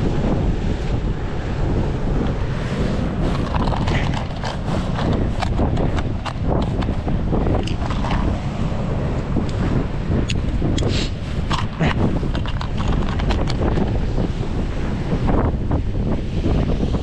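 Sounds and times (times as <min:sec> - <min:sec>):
wind buffeting microphone: 0:00.0 - 0:17.0
plastic case clicks and rattles: 0:03.3 - 0:07.0, 0:07.6 - 0:08.3, 0:11.5 - 0:13.8.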